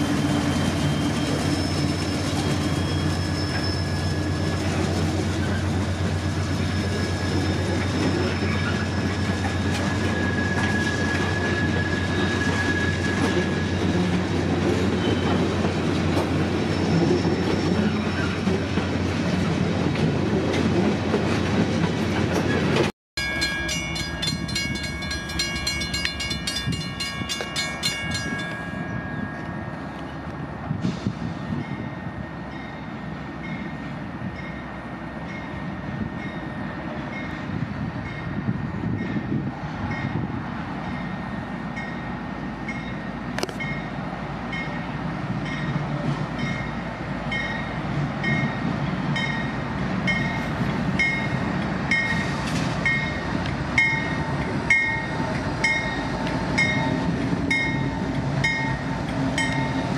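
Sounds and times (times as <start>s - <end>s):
freight train rumbling: 0.0s - 59.9s.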